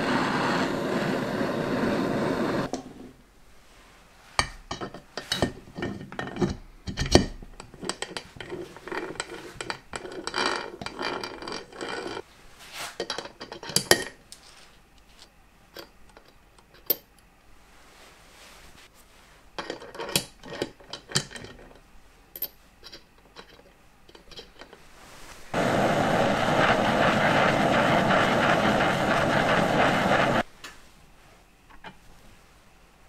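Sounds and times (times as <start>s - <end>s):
loud steady rushing noise: 0.0s - 2.7s, 25.5s - 30.5s.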